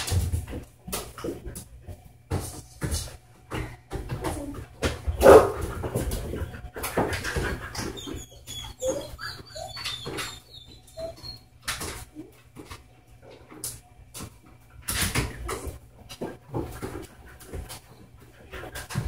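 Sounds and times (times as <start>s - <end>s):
dog feet thumping on treadmill: 0.0s - 19.0s
dog whining: 7.3s - 12.3s.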